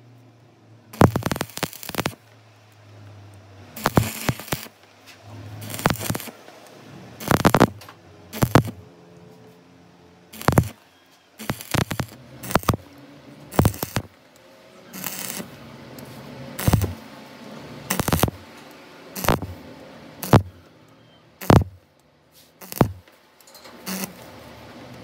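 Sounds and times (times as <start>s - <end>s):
arc welding crackling: 0.9s - 2.3s, 3.7s - 8.9s, 10.3s - 10.8s, 11.4s - 17.1s, 17.8s - 20.7s, 21.4s - 23.2s, 23.8s - 24.4s.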